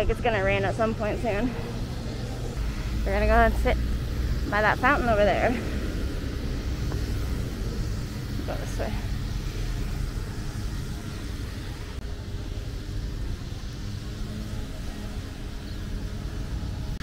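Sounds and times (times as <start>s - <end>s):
car engines running: 0.0s - 17.0s.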